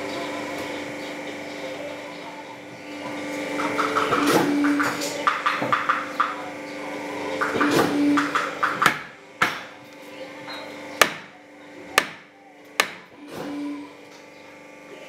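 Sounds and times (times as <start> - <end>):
steady hum: 0.0 - 15.0
hammer knocking: 8.2 - 9.6, 11.0 - 11.3, 12.0 - 13.1.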